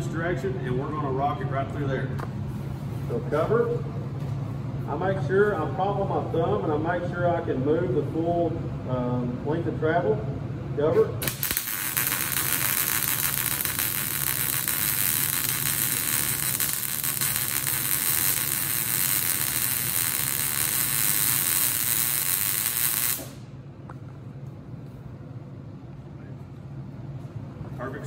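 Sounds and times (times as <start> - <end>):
welding arc crackling: 11.2 - 23.5.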